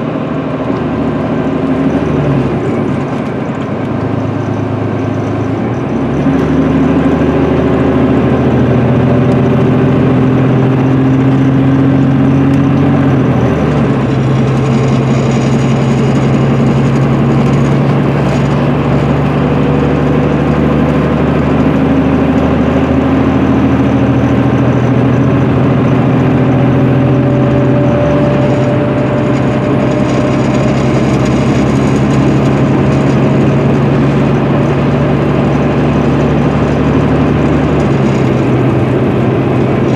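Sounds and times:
diesel coach engine running: 0.0s - 39.9s
road noise: 0.0s - 39.9s.

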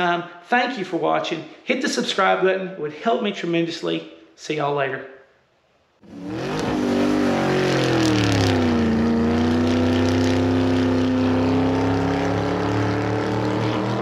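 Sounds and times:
race car engine running: 6.0s - 14.0s.

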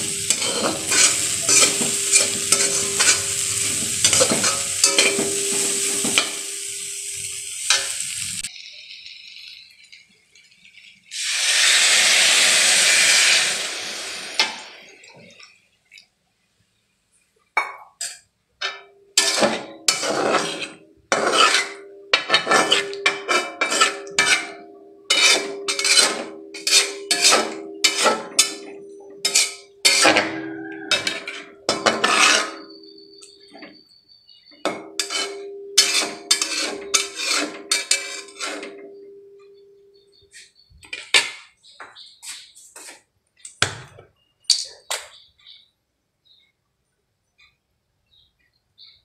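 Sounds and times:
pan ringing low tone: 0.0s - 7.4s, 21.9s - 23.4s, 26.4s - 31.7s, 32.6s - 33.8s, 35.1s - 37.1s, 38.3s - 40.4s
spatula scraping a metal wok: 0.0s - 8.5s, 11.2s - 15.0s, 18.0s - 33.8s, 34.6s - 39.2s.

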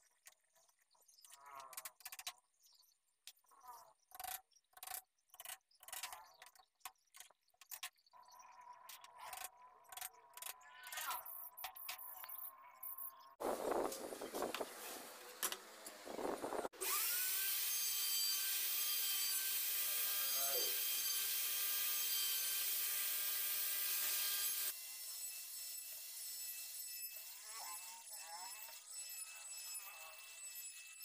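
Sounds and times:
wood router whining: 13.5s - 31.0s.

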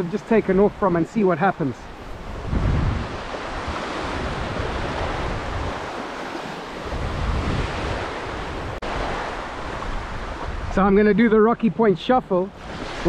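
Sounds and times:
small waves washing over sand: 0.0s - 10.8s, 12.4s - 13.0s
wind rumbling on microphone: 1.9s - 11.2s.

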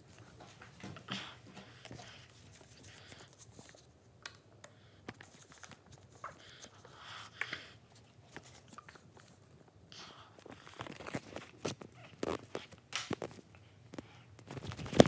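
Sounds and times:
paper rustling and crinkling: 5.1s - 6.8s, 10.4s - 13.5s, 14.4s - 15.0s.

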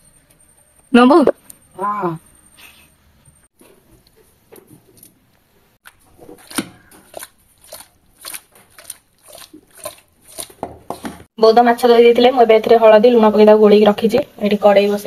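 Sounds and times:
wet squishing of fish mixed by hand: 5.8s - 11.1s.

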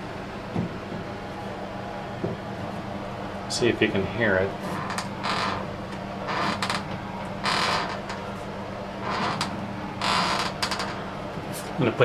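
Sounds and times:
steady low hum: 0.0s - 12.0s
bathtub floor creaking: 4.6s - 8.4s, 9.0s - 11.1s.

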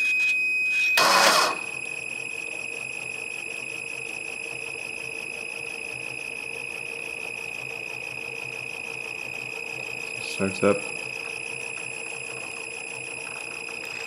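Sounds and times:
high-pitched motor controller squeal: 0.0s - 1.9s.

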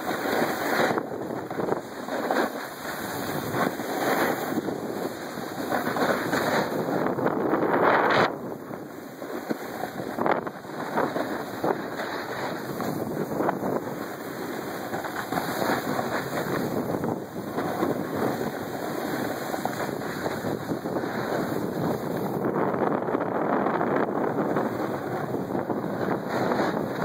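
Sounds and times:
skis scraping over packed snow: 0.0s - 27.0s
wind buffeting microphone: 0.0s - 27.0s.

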